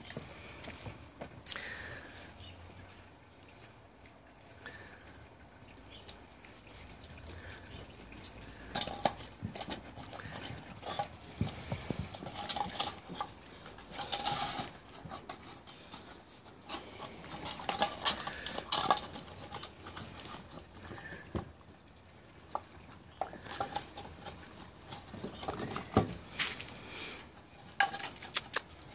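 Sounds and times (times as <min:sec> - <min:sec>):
claws scrabbling on paving: 0:06.0 - 0:21.5, 0:22.4 - 0:28.9.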